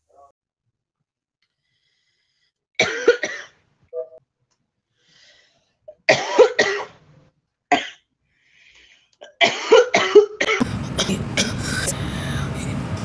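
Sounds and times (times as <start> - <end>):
woman coughing: 2.8 - 3.5, 6.1 - 6.9, 9.2 - 12.4.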